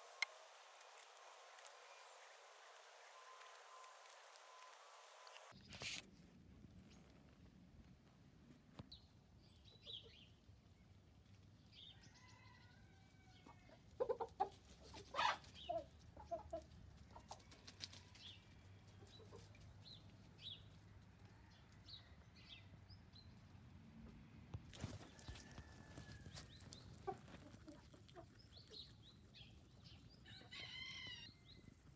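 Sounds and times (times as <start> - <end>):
hens clucking: 13.8 - 17.5, 26.6 - 29.0.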